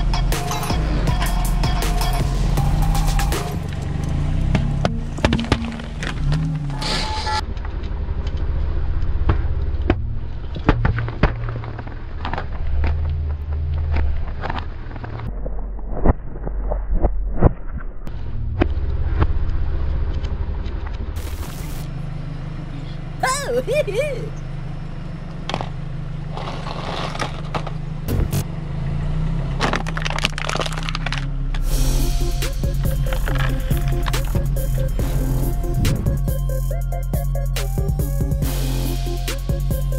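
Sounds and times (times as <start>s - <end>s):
music: 0.0s - 3.8s, 31.6s - 39.9s
car engine running: 0.0s - 15.3s, 18.1s - 39.9s
plastic crackling under tyre: 7.4s - 15.3s, 25.3s - 27.9s, 29.6s - 31.6s
cans crunching under tyre: 25.4s - 27.8s, 29.6s - 31.6s.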